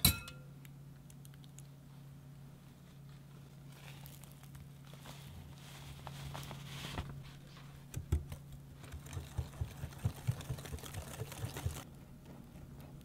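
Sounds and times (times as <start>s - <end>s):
dry mix pouring rustle: 3.6s - 7.0s, 8.8s - 11.9s.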